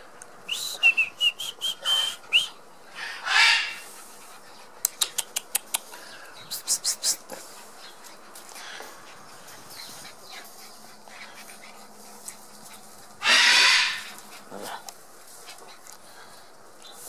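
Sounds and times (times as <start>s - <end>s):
puppy barking: 13.2s - 14.2s
puppy crying: 13.2s - 14.2s.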